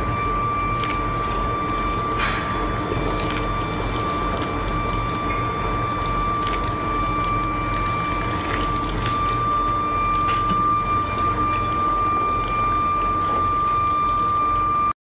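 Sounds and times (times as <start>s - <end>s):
molten metal pouring: 0.0s - 14.9s
high-pitched whine: 0.0s - 15.0s.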